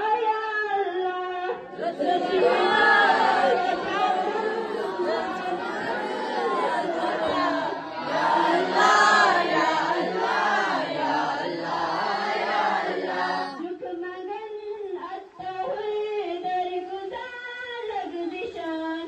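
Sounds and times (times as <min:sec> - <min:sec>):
students singing prayer in unison: 0:01.7 - 0:13.6.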